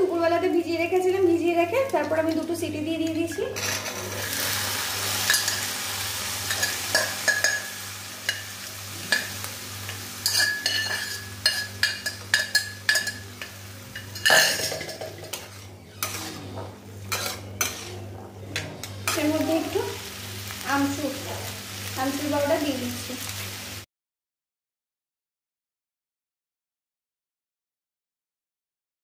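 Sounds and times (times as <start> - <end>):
food sizzling in a pan: 0.0 - 18.1, 18.8 - 23.9
metal spatula scraping pans: 3.4 - 5.8, 6.4 - 9.4, 10.2 - 19.8.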